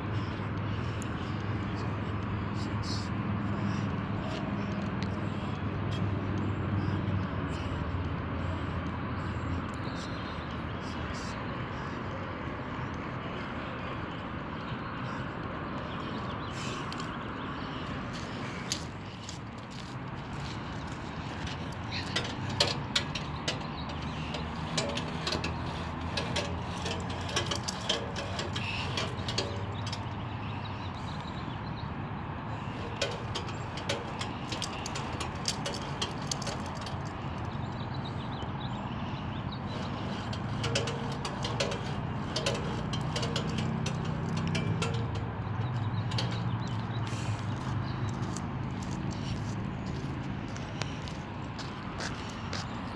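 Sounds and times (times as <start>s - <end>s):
low engine hum: 0.0s - 52.9s
exercise machine clicking and knocking: 21.3s - 30.3s, 32.7s - 37.6s, 39.6s - 47.1s.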